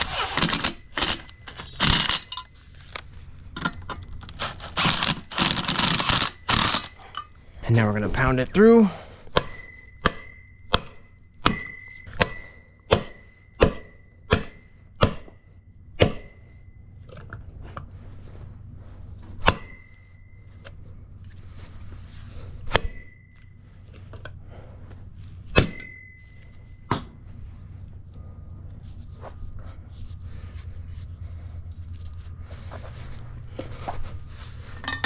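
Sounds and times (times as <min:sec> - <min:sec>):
hammer striking metal: 0:09.3 - 0:15.4, 0:16.0 - 0:16.6, 0:19.4 - 0:20.2, 0:22.7 - 0:23.4, 0:25.5 - 0:27.2.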